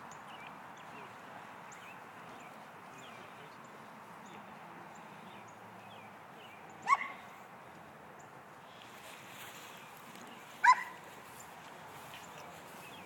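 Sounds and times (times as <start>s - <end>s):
dog barking: 6.8s - 7.2s, 10.6s - 11.0s.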